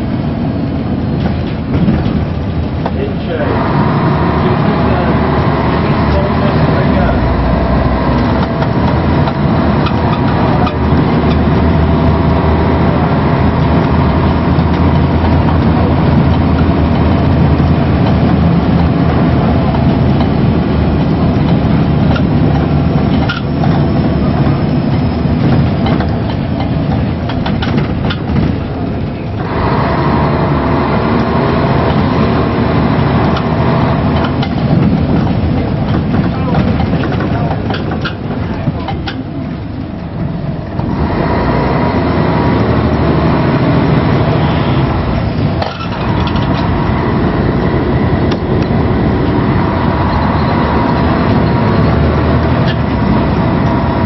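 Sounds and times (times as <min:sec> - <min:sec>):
bus diesel engine running: 0:00.0 - 0:54.0
road noise: 0:00.0 - 0:54.0
rattles: 0:08.2 - 0:29.6, 0:33.1 - 0:41.1, 0:45.2 - 0:53.8.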